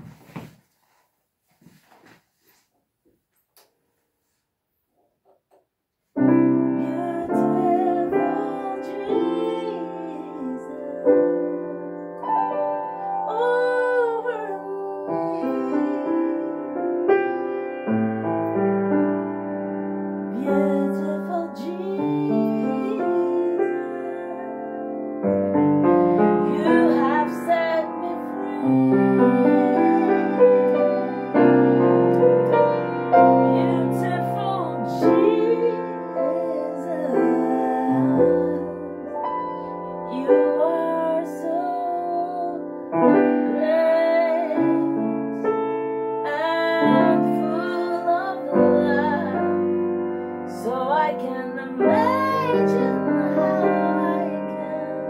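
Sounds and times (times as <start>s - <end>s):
grand piano chords: 6.2s - 55.0s
woman singing: 6.6s - 12.2s, 12.9s - 17.5s, 20.3s - 31.8s, 32.4s - 45.5s, 46.2s - 49.9s, 50.5s - 55.0s.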